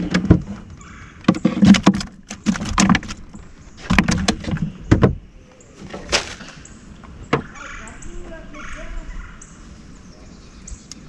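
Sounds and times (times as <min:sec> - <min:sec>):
plastic lid and gear rattling: 0:00.0 - 0:05.2.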